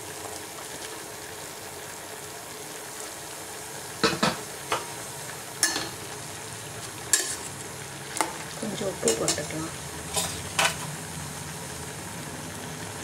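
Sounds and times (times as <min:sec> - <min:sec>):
vegetables hissing in pot: 0:00.0 - 0:13.0.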